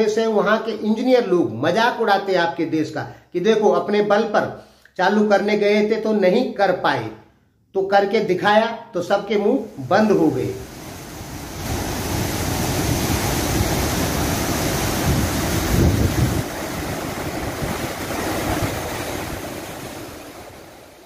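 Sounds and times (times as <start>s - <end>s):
water rushing from dam outlet: 9.7s - 21.0s
wind on microphone: 11.2s - 20.6s.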